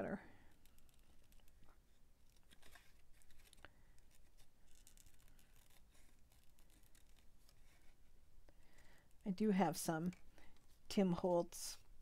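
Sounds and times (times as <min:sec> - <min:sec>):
scissors snipping paper: 0:02.3 - 0:07.6.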